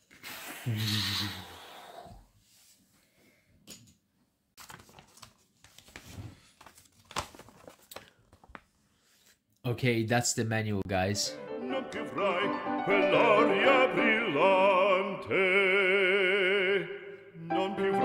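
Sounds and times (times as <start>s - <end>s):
paper rustling and crinkling: 4.6s - 9.4s.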